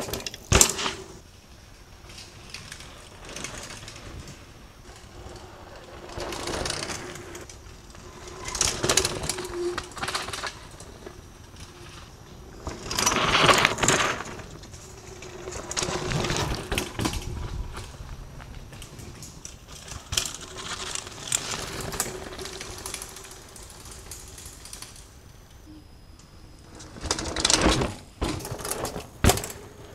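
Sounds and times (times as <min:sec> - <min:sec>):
bike tyres rolling over dirt: 0:00.0 - 0:29.9.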